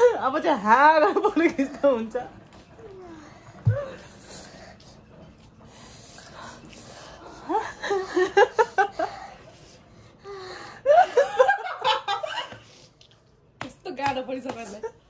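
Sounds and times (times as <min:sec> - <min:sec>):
woman laughing: 0:07.5 - 0:09.1.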